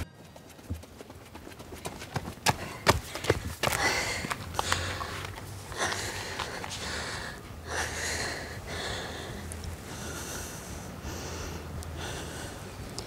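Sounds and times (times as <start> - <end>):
woman panting hard: 2.5 - 12.8.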